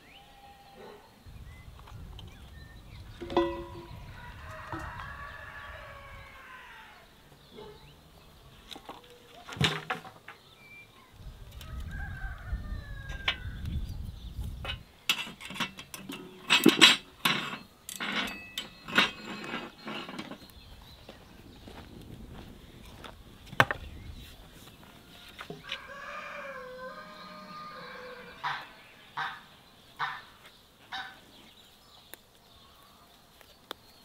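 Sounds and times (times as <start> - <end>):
rooster crowing: 4.1 - 7.1, 11.6 - 13.6, 25.0 - 28.8.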